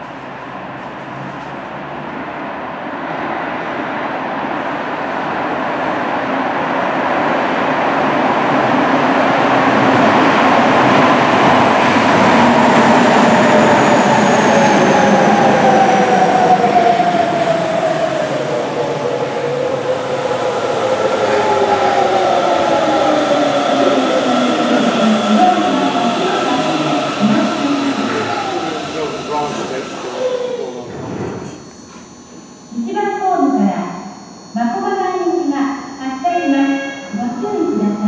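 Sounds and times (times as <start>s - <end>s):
train motor whine: 12.5s - 32.5s.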